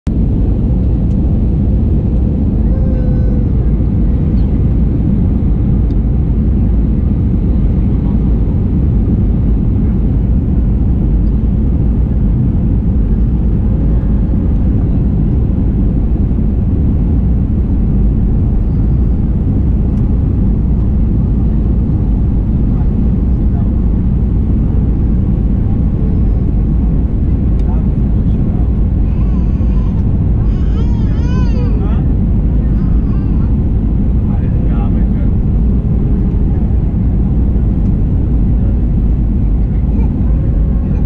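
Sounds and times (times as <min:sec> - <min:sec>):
airliner cabin engine rumble: 0:00.1 - 0:41.0.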